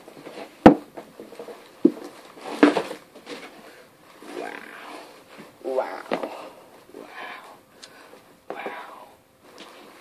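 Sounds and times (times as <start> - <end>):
wordless voice murmur: 4.3 - 6.4.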